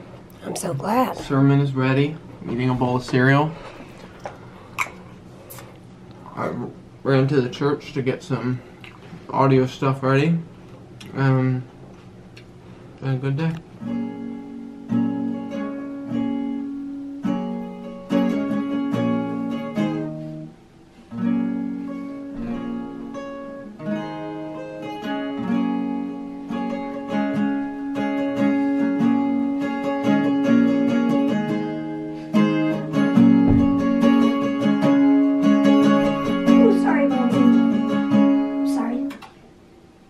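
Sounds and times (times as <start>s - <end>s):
acoustic guitar strumming chords: 13.6s - 39.3s.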